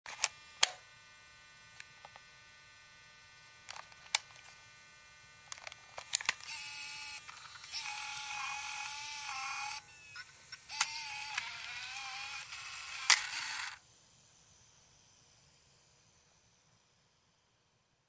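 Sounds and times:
servo motor whirring: 5.5 - 13.8.

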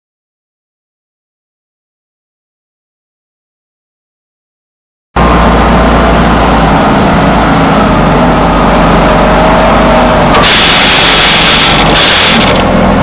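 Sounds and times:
vehicle engine rumbling: 5.2 - 13.0
loud hiss: 10.3 - 12.7.

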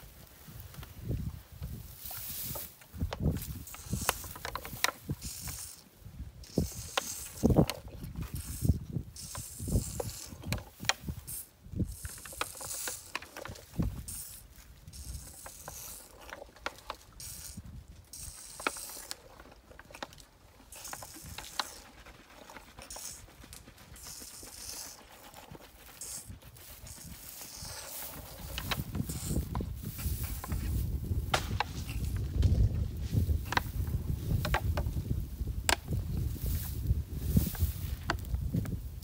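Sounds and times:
elephant calf gulping milk: 3.0 - 31.2.

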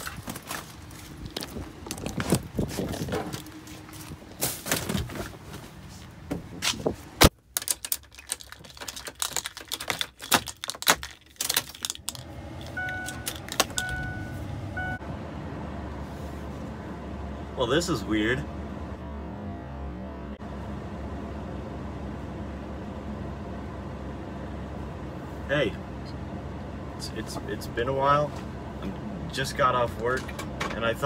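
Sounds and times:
phone handling clicks and rattles: 7.5 - 14.2
car electronic chime beeping: 12.7 - 15.0.

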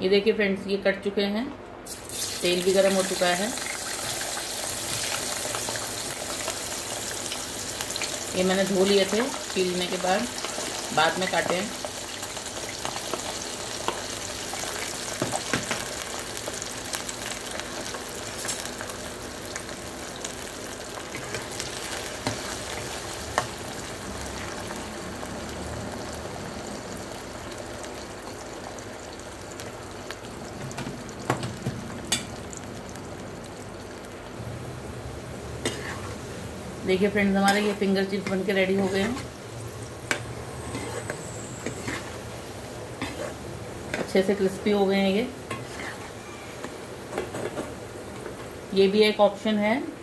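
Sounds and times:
potatoes sizzling in hot oil: 1.9 - 49.5.

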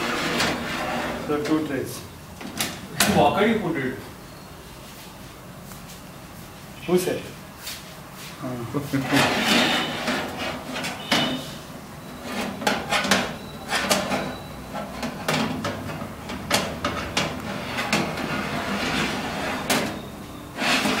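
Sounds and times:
metal tray clattering and scraping: 0.0 - 1.6, 9.0 - 11.6, 12.2 - 21.0.

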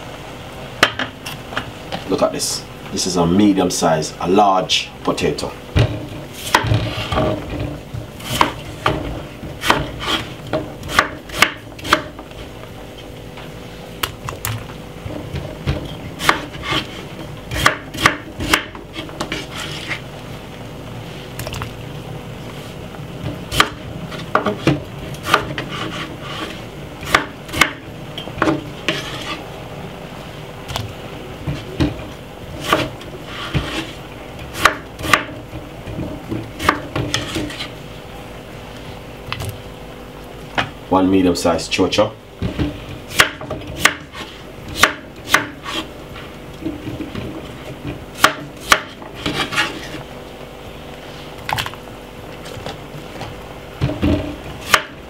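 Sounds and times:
knife scraping: 9.6 - 12.0, 16.2 - 17.7, 18.4 - 20.0, 25.2 - 26.7, 28.8 - 29.5, 32.6 - 34.0, 36.6 - 37.8, 45.3 - 45.9, 48.6 - 50.0.

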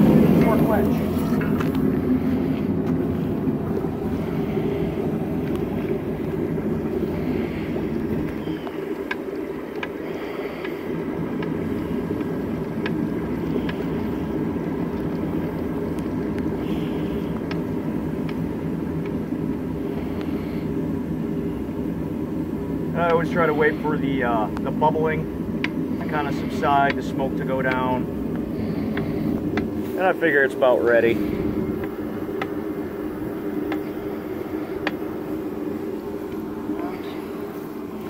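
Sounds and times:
steady low rumble: 0.0 - 38.0
oil bubbling and crackling: 1.0 - 23.6.

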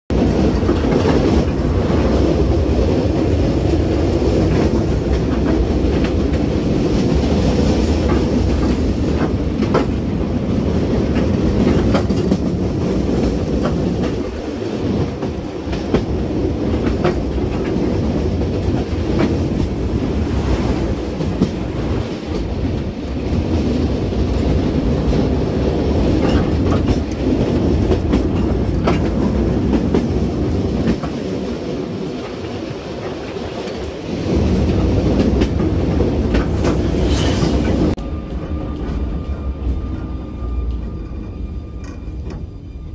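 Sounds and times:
wheels rumbling on rails: 0.1 - 42.9
wheels clicking over rail joints: 26.0 - 31.5.

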